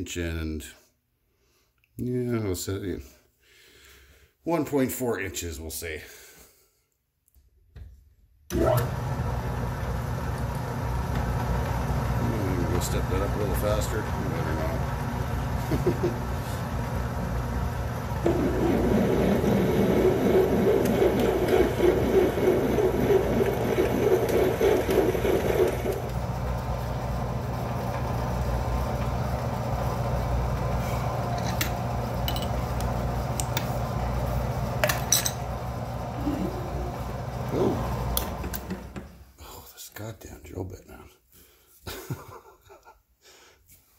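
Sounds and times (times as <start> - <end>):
metal lathe running: 8.6 - 38.8
drill cutting metal: 18.2 - 26.2.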